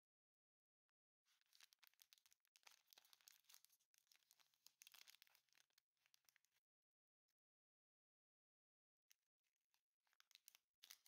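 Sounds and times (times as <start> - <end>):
plastic wrapper crinkling and tearing: 1.4 - 6.6, 10.1 - 11.0.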